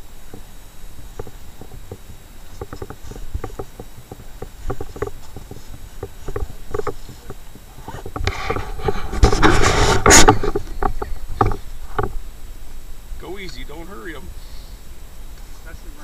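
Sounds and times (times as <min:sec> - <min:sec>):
low wind rumble on microphone: 0:00.0 - 0:16.0
boots shifting on packed snow: 0:00.2 - 0:11.9.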